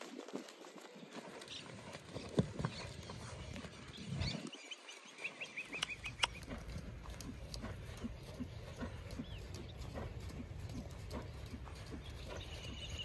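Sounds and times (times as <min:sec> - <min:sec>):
horse hoofbeats on sand: 0:00.0 - 0:13.0.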